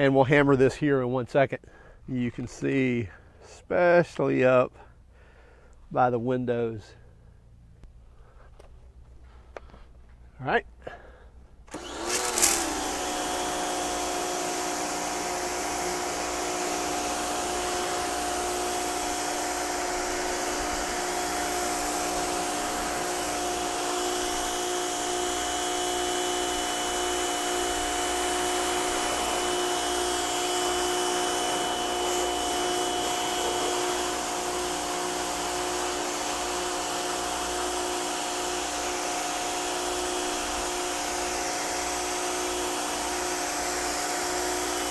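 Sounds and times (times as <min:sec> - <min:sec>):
pressure washer motor humming: 0:11.7 - 0:44.9
high-pressure spray hissing: 0:12.0 - 0:39.0.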